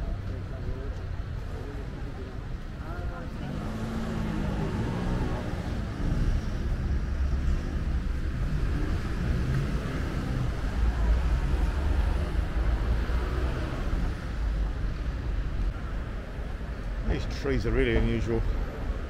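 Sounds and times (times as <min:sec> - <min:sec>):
distant traffic hum: 0:00.0 - 0:19.0.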